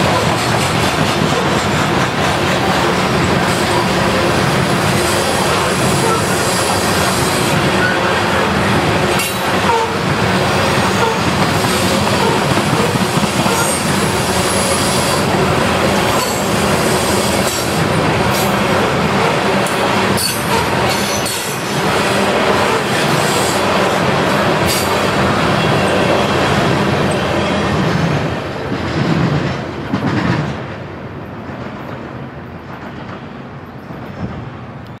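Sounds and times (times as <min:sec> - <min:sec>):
freight train wheels rumbling: 0:00.0 - 0:35.0
train wheel squeal: 0:05.0 - 0:08.2.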